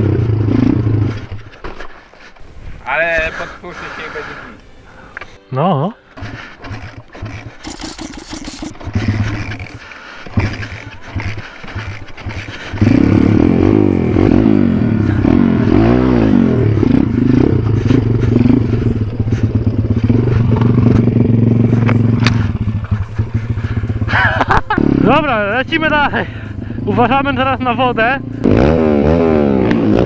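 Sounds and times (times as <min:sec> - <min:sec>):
small motorbike engine revving: 0:00.0 - 0:01.6, 0:06.1 - 0:25.3, 0:28.3 - 0:30.0.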